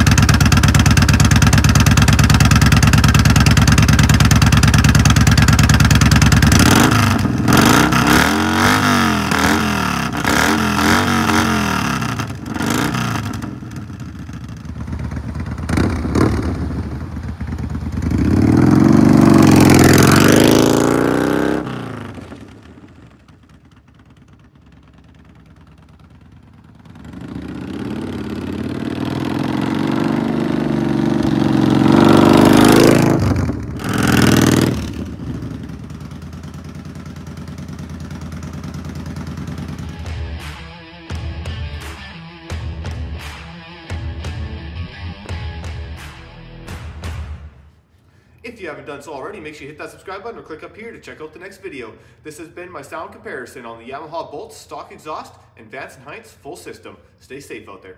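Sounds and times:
motorcycle engine revving: 0.0s - 41.2s.

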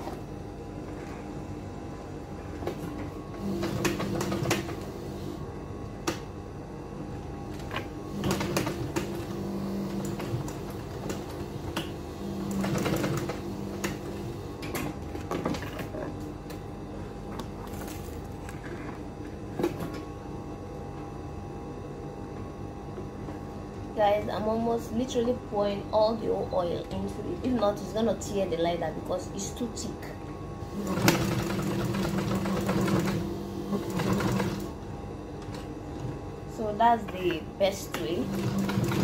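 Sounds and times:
sewing machine stitching: 8.2s - 14.0s, 30.8s - 34.7s, 38.1s - 39.0s.

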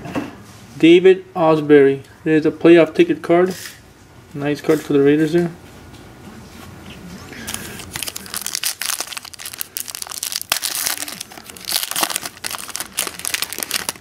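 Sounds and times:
foil wrapper crinkling and tearing: 7.5s - 14.0s.

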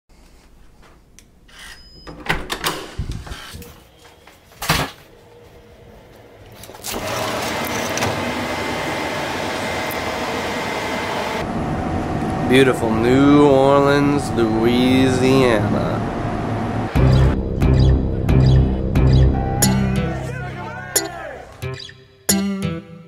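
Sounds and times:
outdoor city noise: 3.6s - 19.7s.

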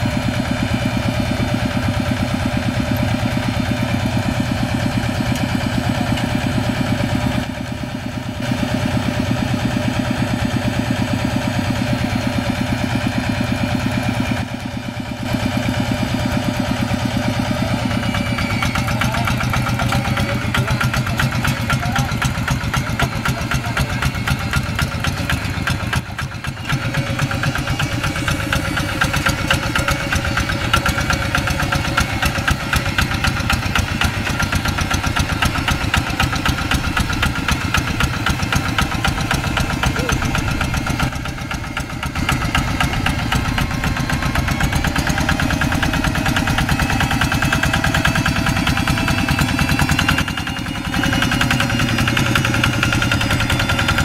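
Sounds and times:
diesel engine chugging: 0.0s - 54.0s.

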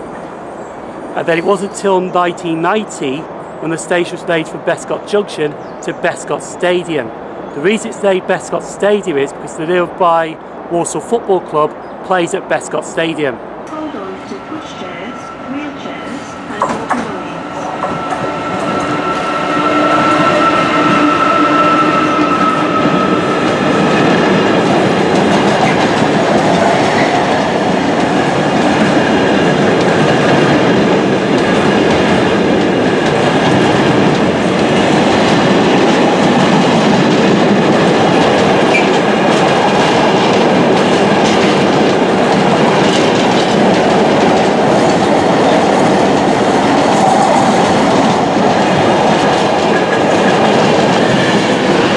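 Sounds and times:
train wheels rumbling on track: 0.0s - 51.9s
locomotive whine: 13.4s - 51.9s.

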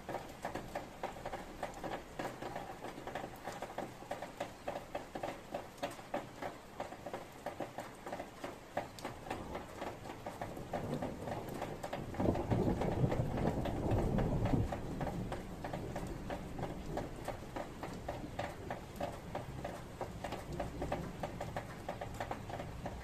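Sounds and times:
rain dripping and pattering: 0.0s - 23.0s
thunder rumble: 10.7s - 17.4s.

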